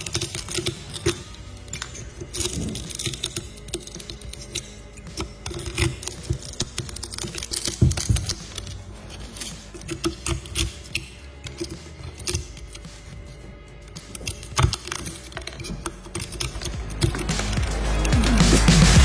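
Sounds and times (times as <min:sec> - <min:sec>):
glass crackling and snapping: 0:00.0 - 0:12.8, 0:14.0 - 0:18.7
metal scraper chipping glass: 0:00.0 - 0:12.8.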